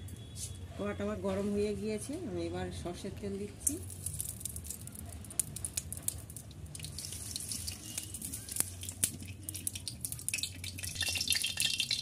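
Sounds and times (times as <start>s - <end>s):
hot oil crackling and popping: 3.4s - 12.0s.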